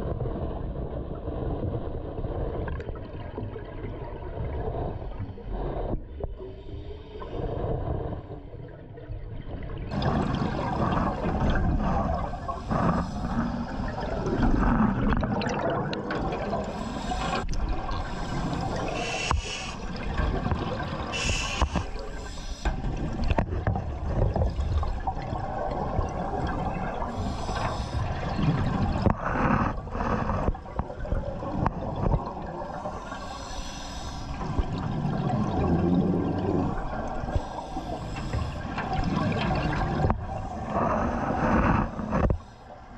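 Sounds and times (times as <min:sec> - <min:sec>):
water sloshing and gurgling: 0:00.0 - 0:42.9
water bubbling: 0:09.8 - 0:42.6.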